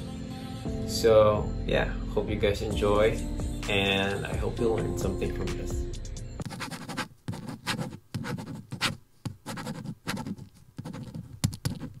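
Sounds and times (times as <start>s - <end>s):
pen scratching on paper: 6.4s - 12.0s.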